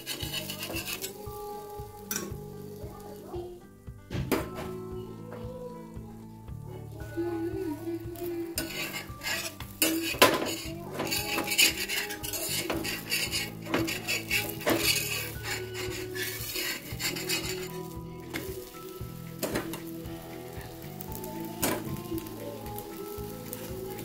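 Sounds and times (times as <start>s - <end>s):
spatula scraping iron griddle: 0.0s - 3.3s, 8.2s - 24.0s
oil sizzling: 0.0s - 24.0s.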